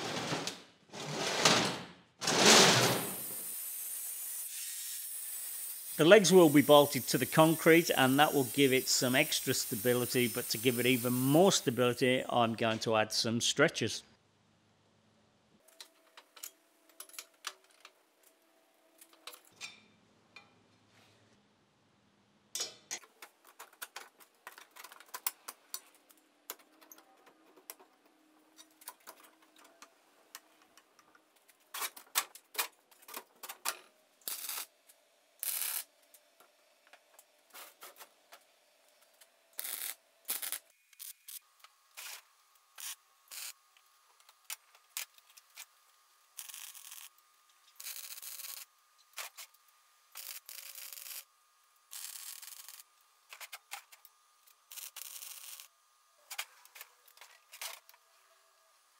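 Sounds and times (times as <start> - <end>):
welding arc crackling: 3.0 - 12.0, 34.2 - 34.7, 35.4 - 35.9, 39.5 - 43.6, 46.3 - 49.5, 50.1 - 51.3, 51.9 - 52.9, 54.6 - 55.7.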